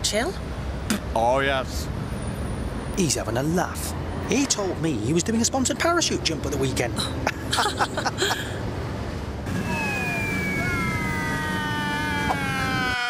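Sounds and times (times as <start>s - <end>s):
descending whistling tones: 9.5s - 13.0s.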